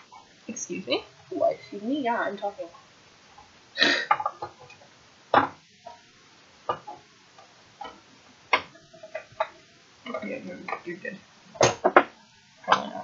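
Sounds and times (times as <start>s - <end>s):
small objects knocking: 4.0s - 5.6s.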